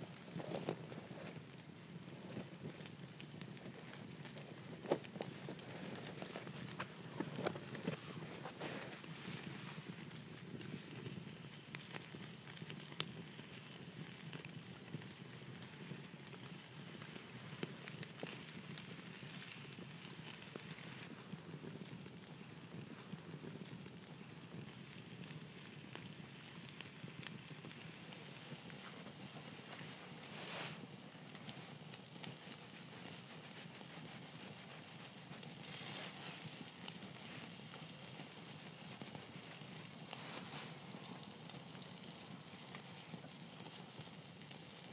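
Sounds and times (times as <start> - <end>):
campfire crackling: 0.0 - 44.9
bacon sizzling: 24.6 - 42.9.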